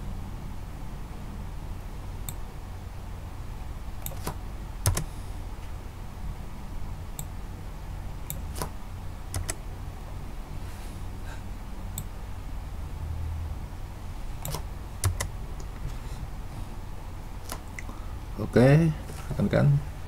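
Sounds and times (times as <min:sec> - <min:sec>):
low steady hum: 0:00.0 - 0:20.0
keyboard keys clicking: 0:04.1 - 0:05.1, 0:09.3 - 0:09.6, 0:14.5 - 0:15.3.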